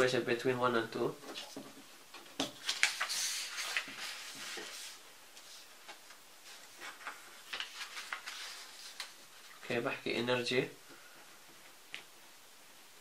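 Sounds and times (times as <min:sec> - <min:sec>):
paper rustling and sliding: 0:02.5 - 0:09.6.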